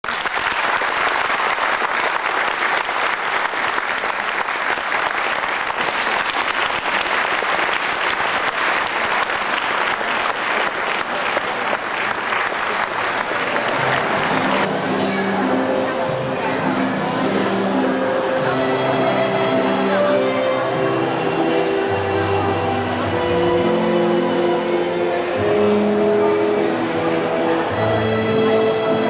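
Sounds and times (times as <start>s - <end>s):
audience applauding: 0.0s - 15.5s.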